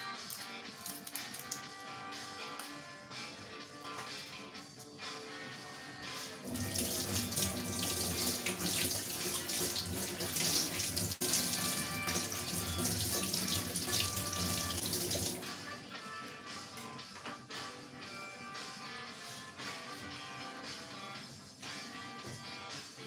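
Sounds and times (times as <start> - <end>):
soft background music: 0.0 - 23.0
tap running into a sink: 6.5 - 15.4.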